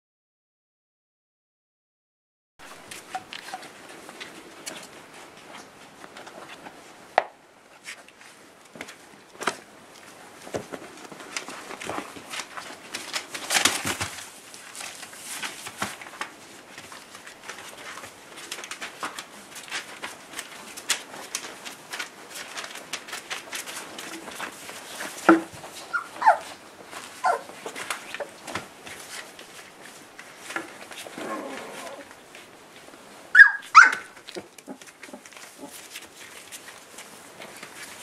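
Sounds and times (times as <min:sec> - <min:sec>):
paws scuffling on fabric: 0:09.9 - 0:38.0
puppy yips: 0:25.9 - 0:26.6, 0:27.2 - 0:27.5, 0:33.3 - 0:34.2.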